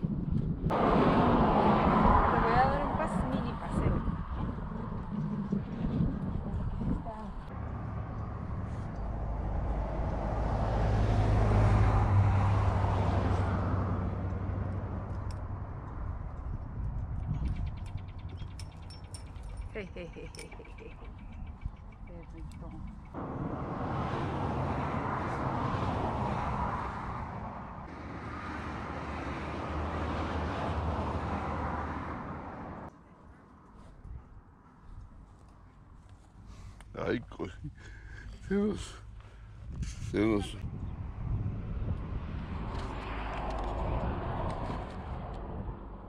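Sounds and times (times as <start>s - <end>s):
wind on microphone: 0.0s - 27.9s, 39.6s - 46.0s
motor vehicle passing by: 0.7s - 32.9s, 38.8s - 46.0s.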